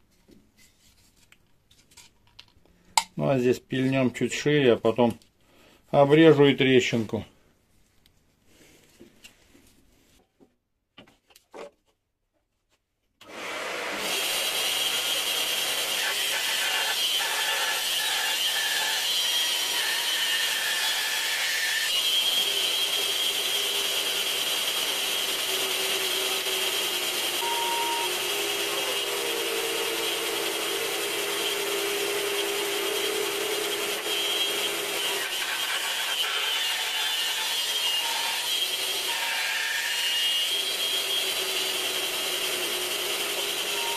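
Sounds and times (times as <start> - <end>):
bandsaw cutting wood: 13.2 - 43.9.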